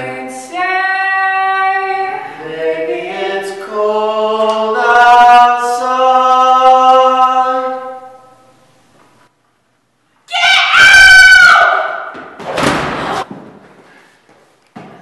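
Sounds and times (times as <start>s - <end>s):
young man singing: 0.0s - 8.0s.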